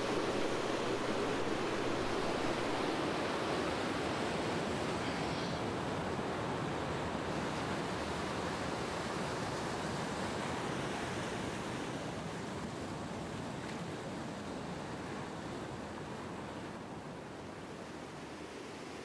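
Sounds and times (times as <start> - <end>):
steady rushing noise: 0.0 - 4.0.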